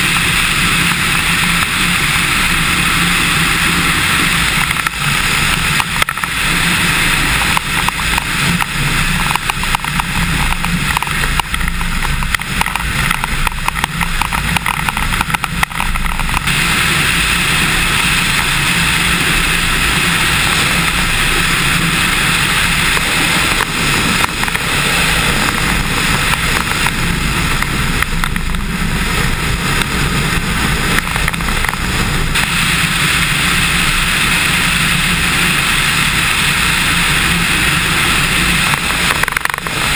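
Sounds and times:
light aircraft engine running: 0.0 - 39.9
wind buffeting microphone: 0.0 - 39.9.

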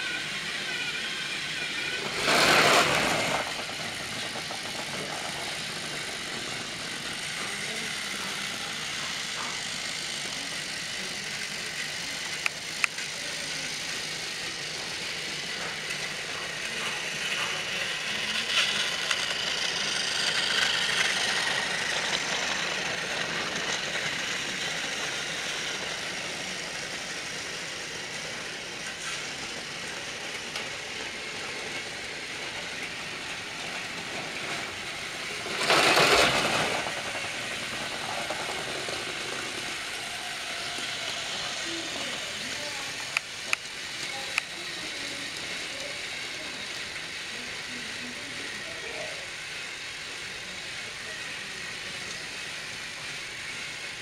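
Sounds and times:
toy train motor whir: 0.0 - 54.0
toy train wheel rattle: 0.0 - 54.0.

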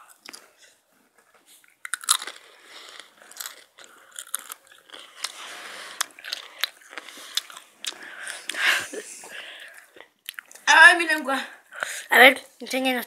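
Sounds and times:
chewing crunchy chips: 1.5 - 8.6, 9.6 - 10.7.

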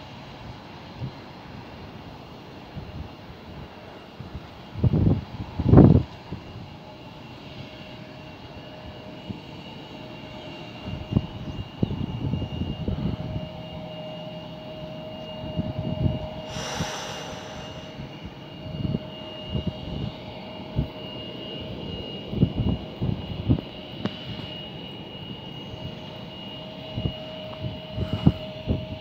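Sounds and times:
jet engines whining at takeoff: 0.0 - 29.0
wind buffeting microphone: 2.7 - 6.8, 10.8 - 13.6, 15.4 - 21.0, 26.8 - 29.0
rush of hiss: 16.5 - 18.6.

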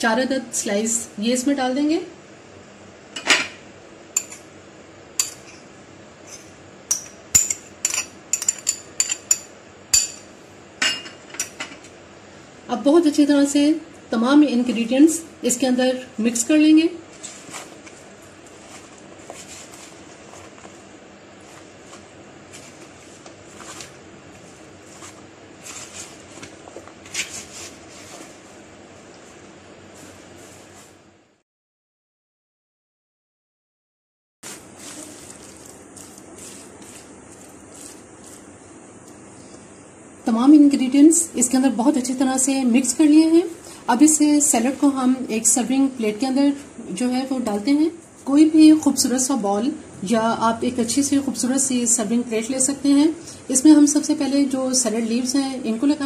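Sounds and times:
steady background noise: 34.5 - 56.0.

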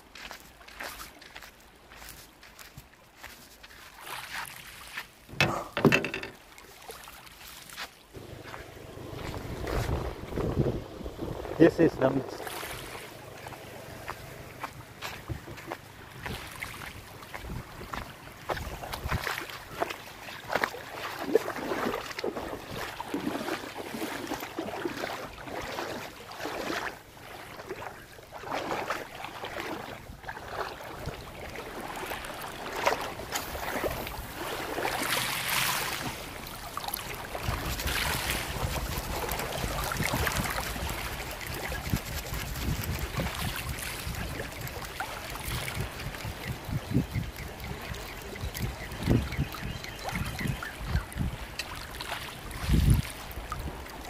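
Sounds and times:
legs splashing through water: 0.0 - 54.0
small waves lapping: 0.0 - 54.0
wind rumble on microphone: 8.2 - 19.9, 37.0 - 51.6, 52.4 - 54.0.

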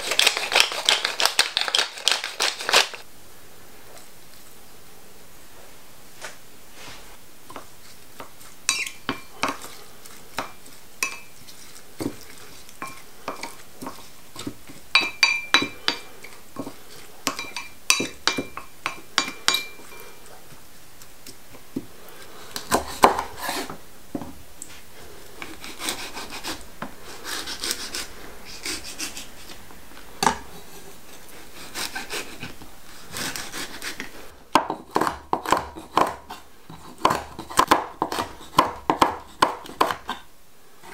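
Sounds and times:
wooden spoon stirring wet sauce: 7.5 - 25.6
metal spoon tapping ceramic bowl: 15.0 - 16.0.

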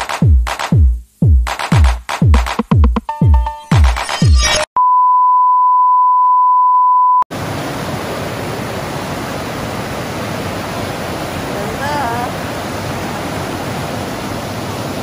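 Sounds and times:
electronic music: 0.0 - 4.7
steady beep tone: 3.1 - 7.2
river rapids pouring over rocks: 7.4 - 15.0.

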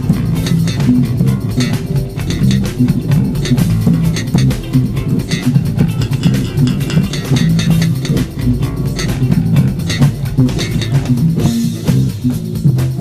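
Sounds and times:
electric bass plucked lines: 0.0 - 13.0
jazz fusion recording with drums: 0.0 - 13.0.

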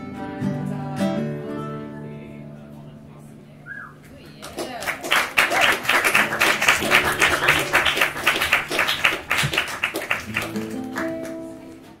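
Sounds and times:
acoustic guitar strumming: 0.0 - 3.5, 6.0 - 12.0
bass: 0.0 - 4.1
ukulele strumming: 6.2 - 12.0.

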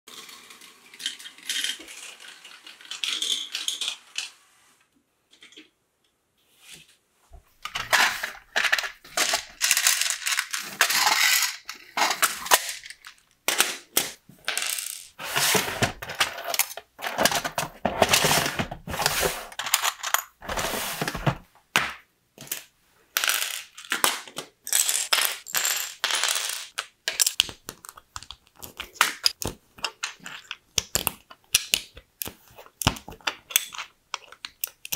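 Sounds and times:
plastic bricks clicking together: 0.1 - 4.3, 7.6 - 15.2, 23.2 - 34.9
plastic pieces clattering: 0.1 - 4.3, 7.6 - 21.4, 22.4 - 34.9.

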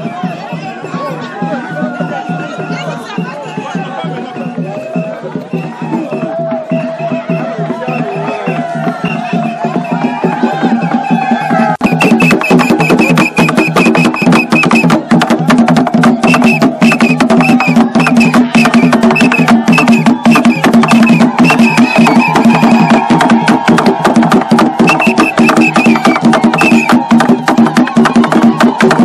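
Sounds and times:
clacking percussion: 1.5 - 29.0
hand drumming: 8.5 - 29.0.

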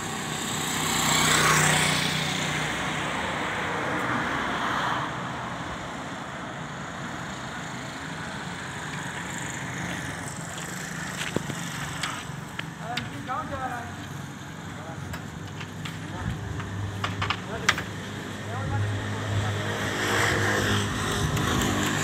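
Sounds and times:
motorcycle passing close: 0.0 - 5.2, 16.4 - 22.0
low traffic hum: 0.0 - 22.0
passing traffic: 0.0 - 22.0.

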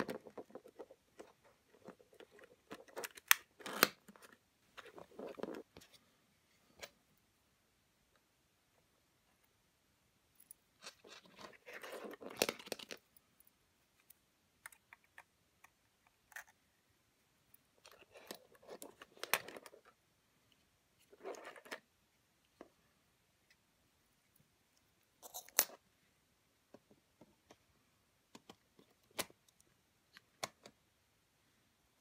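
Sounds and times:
small parts clicking and scraping: 17.8 - 19.9, 25.2 - 25.8.

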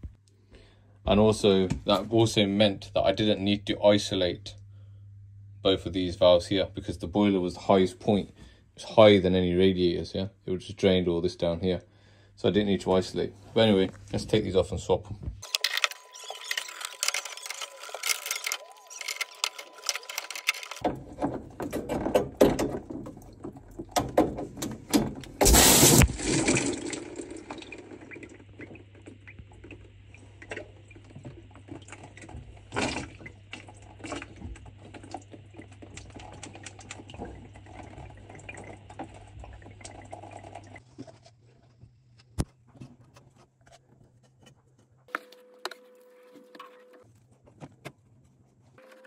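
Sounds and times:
pressurised water squirting: 15.4 - 40.8.

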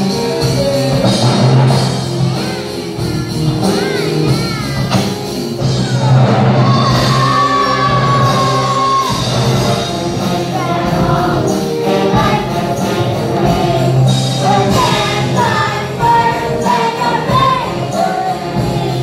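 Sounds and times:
loud backing music: 0.0 - 19.0
choir singing: 6.0 - 19.0.

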